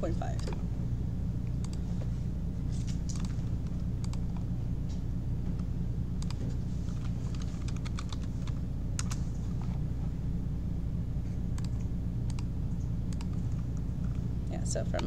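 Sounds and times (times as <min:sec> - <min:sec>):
steady low hum: 0:00.0 - 0:15.0
keyboard keystrokes: 0:03.0 - 0:04.4, 0:07.0 - 0:09.2.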